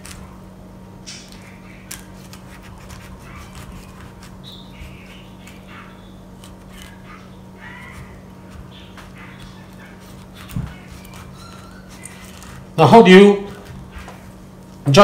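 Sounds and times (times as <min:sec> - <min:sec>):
knife cutting pineapple: 0:00.0 - 0:00.4, 0:01.1 - 0:14.1.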